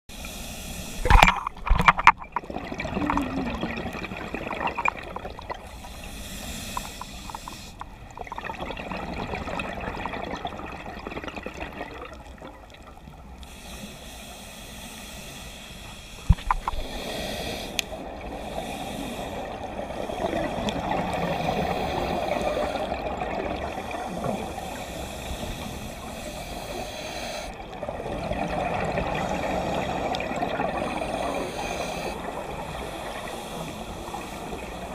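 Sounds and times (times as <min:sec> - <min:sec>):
scuba regulator breathing: 0:00.1 - 0:01.6, 0:05.5 - 0:08.0, 0:13.3 - 0:34.9
gurgling exhaled bubbles: 0:01.0 - 0:05.8, 0:08.1 - 0:13.0, 0:19.4 - 0:24.8, 0:27.6 - 0:34.9.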